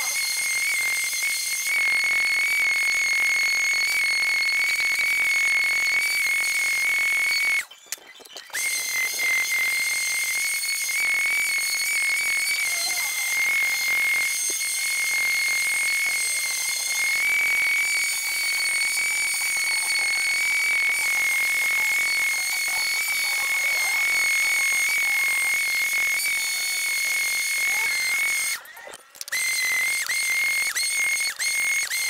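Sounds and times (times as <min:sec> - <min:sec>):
electric sander motor whine: 0:08.6 - 0:32.0.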